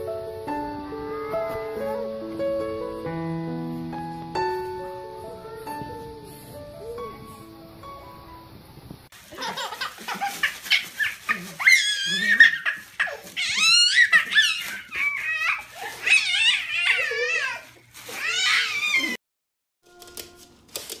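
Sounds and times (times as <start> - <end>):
dog whining: 10.7 - 19.2.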